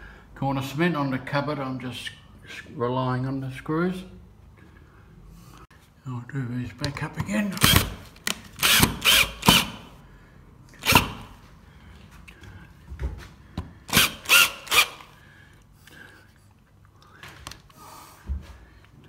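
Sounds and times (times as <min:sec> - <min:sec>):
cordless drill driving screws: 0:08.6 - 0:09.8, 0:10.8 - 0:11.3, 0:13.9 - 0:15.2.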